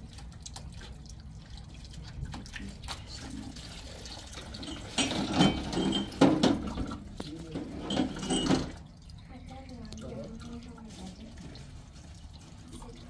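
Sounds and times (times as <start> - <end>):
tap water running into a sink: 0.0 - 13.0
dishes knocking: 4.7 - 7.0, 7.6 - 8.8.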